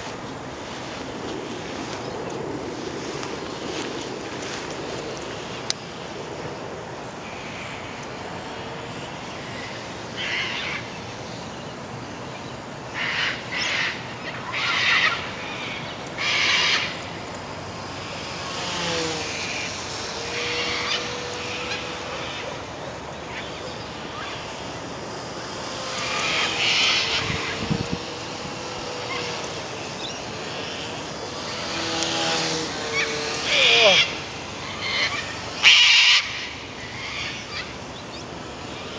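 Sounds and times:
model plane motor whine: 0:00.0 - 0:38.9
wind buffeting microphone: 0:26.0 - 0:30.0.

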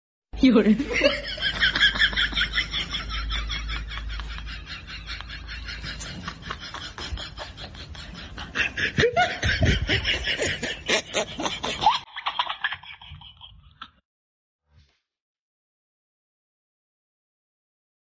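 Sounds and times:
group of people laughing: 0:00.7 - 0:14.0.

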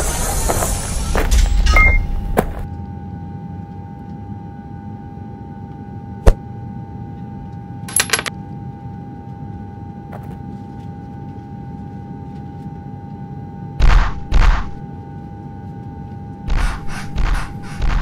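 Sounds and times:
vending machine humming: 0:00.0 - 0:02.8
metallic clinking: 0:07.9 - 0:08.3.

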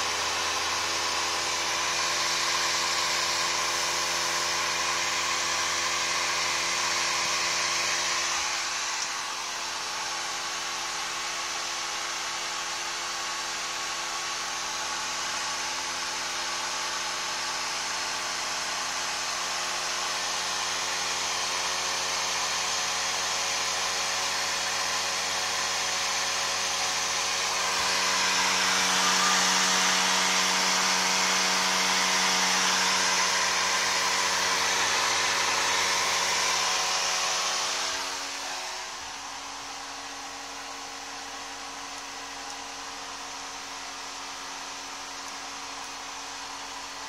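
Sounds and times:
fan whine: 0:00.0 - 0:11.1, 0:22.8 - 0:47.0
computer blower fan whooshing: 0:23.7 - 0:47.0.

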